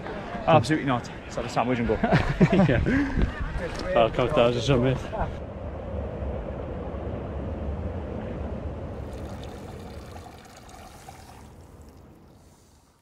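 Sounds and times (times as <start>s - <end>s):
low rumble: 5.1s - 9.7s
water trickling and dripping: 9.0s - 13.0s.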